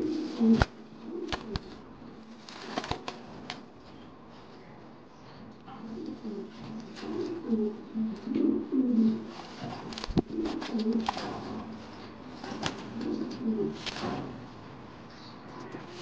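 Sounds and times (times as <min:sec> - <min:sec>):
pigeon cooing: 0:00.0 - 0:01.8, 0:05.8 - 0:09.3, 0:10.2 - 0:11.8, 0:12.9 - 0:13.8.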